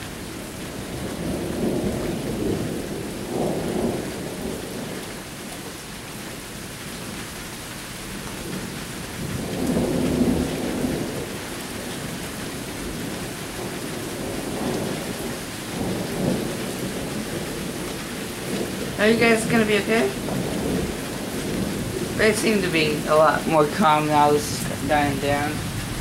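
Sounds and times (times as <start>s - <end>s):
thunder rumbling: 0.0s - 5.3s, 8.4s - 26.0s
steady rain: 0.0s - 26.0s.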